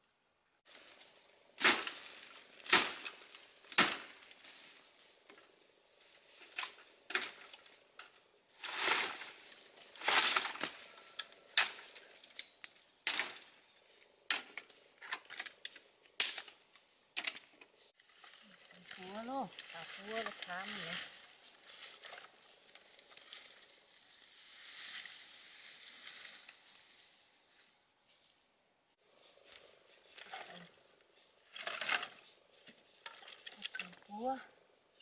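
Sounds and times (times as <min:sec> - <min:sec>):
brush and leaves rustling: 0:00.6 - 0:35.0
dry sticks snapping: 0:00.9 - 0:05.4, 0:06.4 - 0:09.2, 0:10.0 - 0:13.6, 0:18.2 - 0:23.7.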